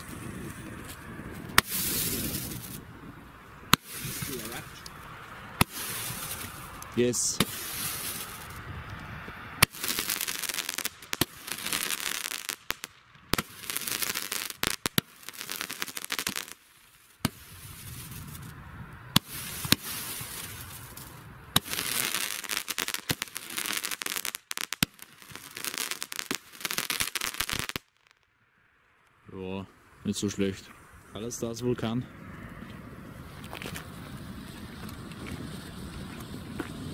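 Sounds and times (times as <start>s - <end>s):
firework shots: 0.0s - 8.7s, 9.5s - 28.2s
crackling firework stars: 0.0s - 28.4s, 32.1s - 36.9s.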